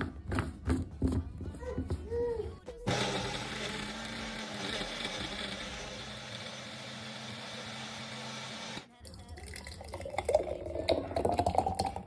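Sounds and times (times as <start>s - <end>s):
blender running: 2.9s - 8.9s
smoothie pouring into glass jar: 9.1s - 12.0s.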